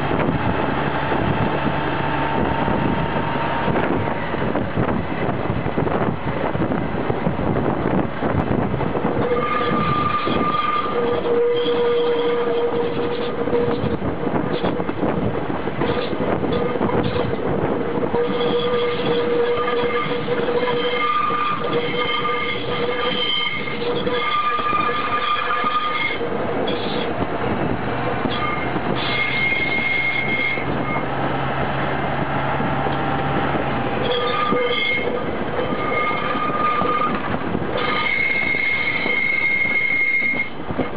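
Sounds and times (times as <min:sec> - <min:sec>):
steel wheels rolling on rail: 0:00.0 - 0:40.9
high-pitched wheel squeals: 0:09.2 - 0:14.9, 0:15.8 - 0:27.2, 0:28.1 - 0:31.1, 0:33.9 - 0:40.6.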